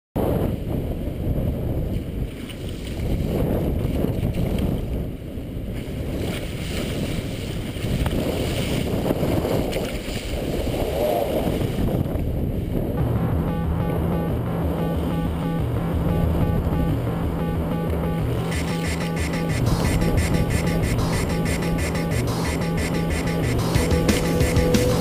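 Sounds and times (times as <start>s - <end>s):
wind buffeting microphone: 0.2s - 13.0s.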